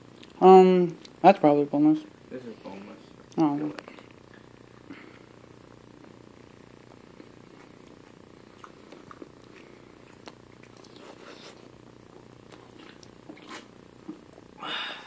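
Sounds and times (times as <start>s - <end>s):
man chewing: 0.0s - 0.4s, 7.0s - 14.6s
steady low hum: 0.0s - 15.0s.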